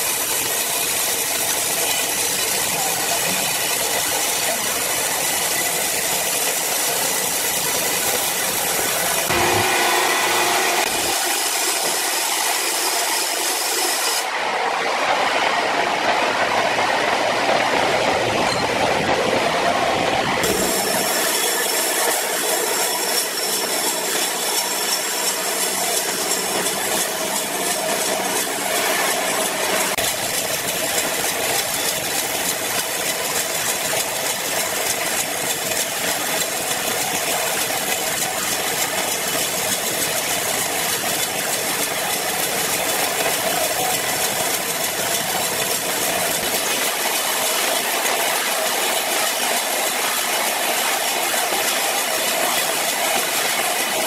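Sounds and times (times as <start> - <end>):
band sawmill running: 0.0 - 54.0
saw blade hissing in wood: 9.1 - 14.3.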